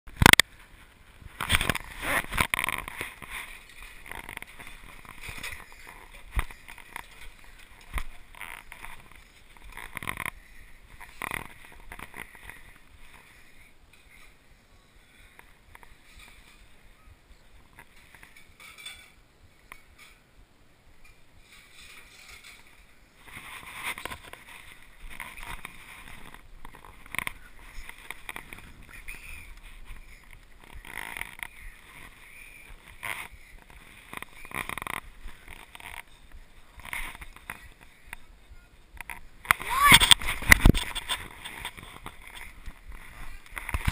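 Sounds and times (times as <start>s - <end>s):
clothing rustling: 0.5s - 14.4s, 21.4s - 38.0s.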